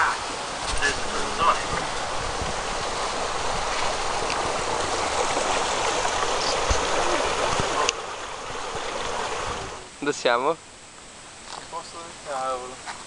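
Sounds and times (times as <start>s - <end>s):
boat rushing noise: 0.0s - 10.4s.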